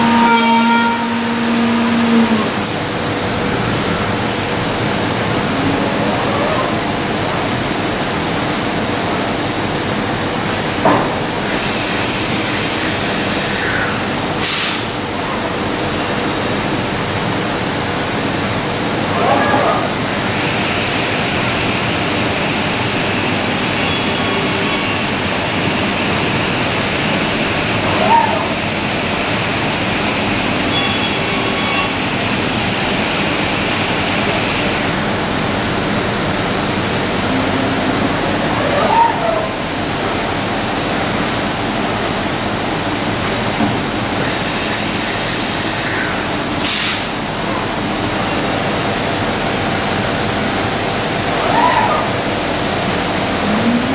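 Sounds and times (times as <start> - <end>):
cnc machine rushing noise: 0.0 - 41.8, 47.5 - 53.9
high-pitched tool whine: 23.8 - 25.4, 30.7 - 32.1, 52.0 - 53.9.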